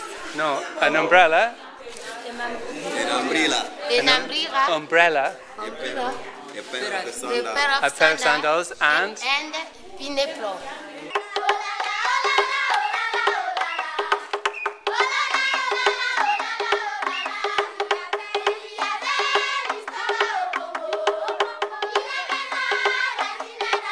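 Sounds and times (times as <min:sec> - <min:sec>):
children singing: 0:10.7 - 0:23.9
wooden slit drum knocks: 0:11.1 - 0:23.9.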